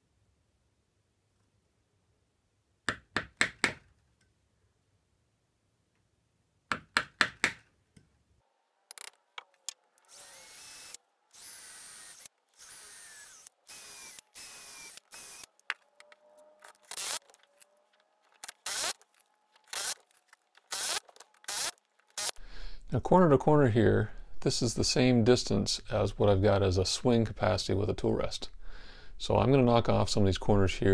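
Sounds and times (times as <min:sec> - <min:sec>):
cordless drill whining: 0:10.0 - 0:17.6, 0:18.4 - 0:22.4.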